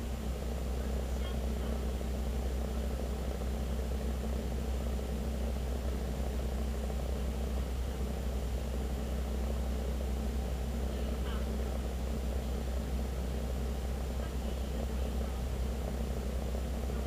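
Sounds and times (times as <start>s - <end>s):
car engine and road rumble: 0.0s - 17.0s.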